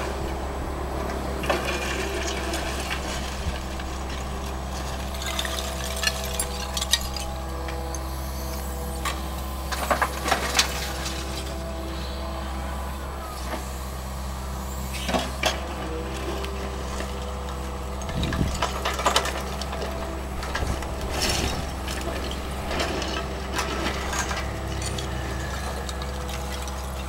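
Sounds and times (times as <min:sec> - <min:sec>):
excavator diesel engine running: 0:00.0 - 0:27.0
bucket clanking on rubble: 0:18.0 - 0:27.0.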